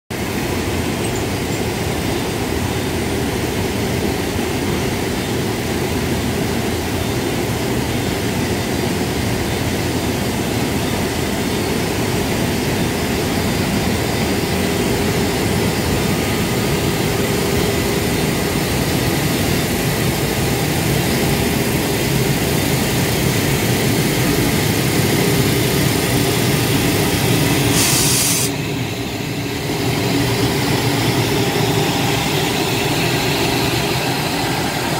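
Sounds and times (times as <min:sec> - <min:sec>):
wheels rumbling on rails: 0:00.1 - 0:27.8, 0:28.5 - 0:34.9
electric locomotive hum: 0:00.1 - 0:34.9
short hiss: 0:27.7 - 0:28.6.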